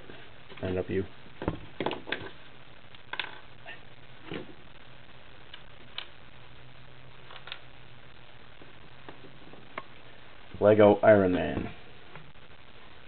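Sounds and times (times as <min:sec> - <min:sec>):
faint steady low hum: 0:00.0 - 0:13.0.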